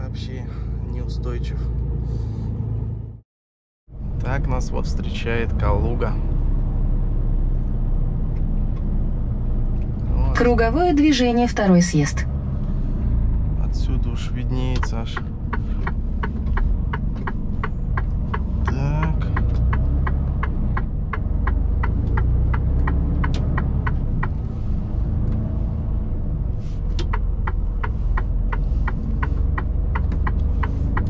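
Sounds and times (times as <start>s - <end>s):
truck engine and tyre rumble: 0.0s - 3.2s, 3.9s - 31.0s
turn indicator ticking: 14.4s - 24.5s, 26.8s - 31.0s.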